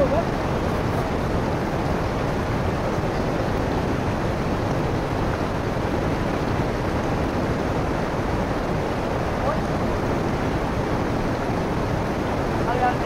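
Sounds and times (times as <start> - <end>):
whitewater rushing over rocks: 0.0 - 13.0.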